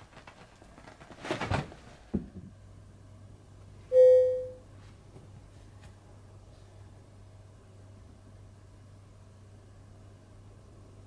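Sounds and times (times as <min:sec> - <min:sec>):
bell-like ding: 0:03.9 - 0:04.6.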